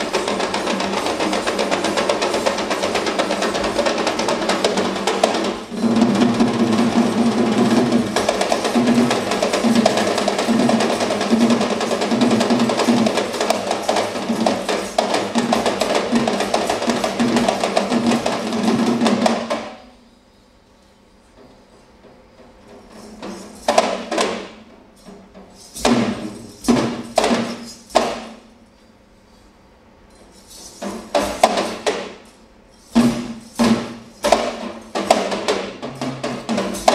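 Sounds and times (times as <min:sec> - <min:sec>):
fast drumming: 0:00.0 - 0:19.9, 0:22.0 - 0:28.5, 0:30.6 - 0:32.2, 0:32.9 - 0:36.9
faint stage background: 0:00.0 - 0:36.9.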